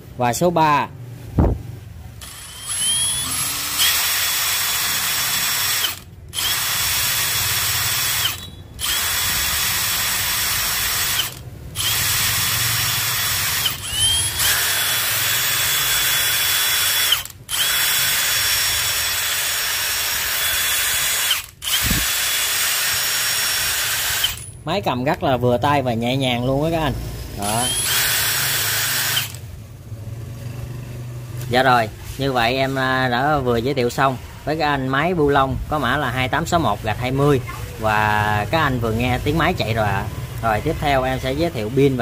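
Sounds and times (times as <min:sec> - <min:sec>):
impact wrench whining: 0:02.2 - 0:24.7, 0:26.4 - 0:29.6.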